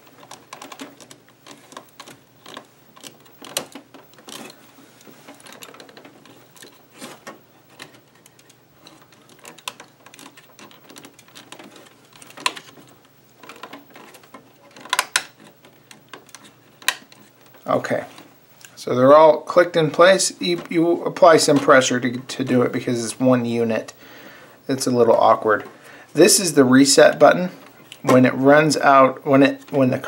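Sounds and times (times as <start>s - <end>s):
plastic cartridges clicking: 5.3s - 18.7s.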